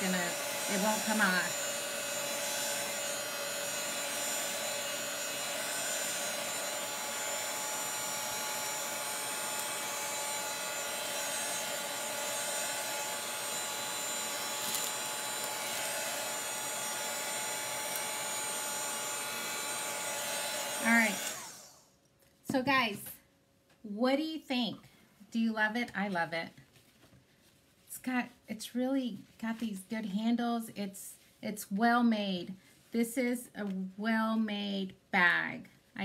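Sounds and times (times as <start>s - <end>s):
hot-air dryer blowing: 0.0s - 21.9s.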